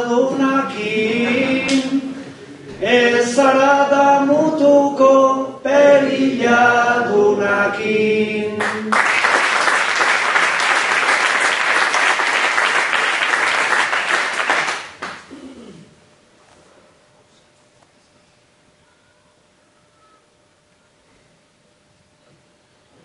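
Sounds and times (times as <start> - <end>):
man singing into a microphone: 0.0 - 2.2, 2.8 - 5.8
audience applause: 8.6 - 15.3.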